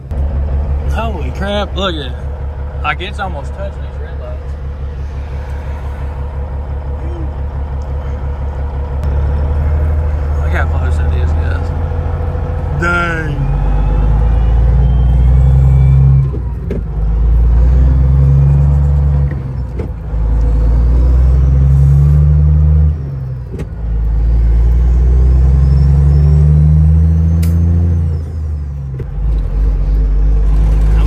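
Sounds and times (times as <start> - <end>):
diesel truck engine shifting gears: 0.0 - 31.0.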